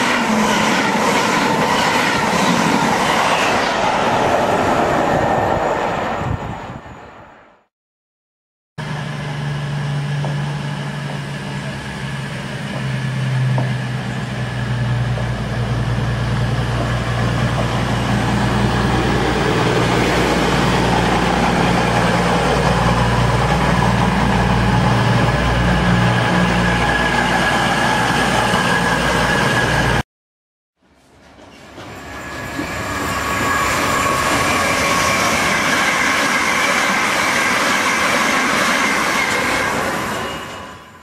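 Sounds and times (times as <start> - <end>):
diesel train engine humming: 8.8 - 30.0.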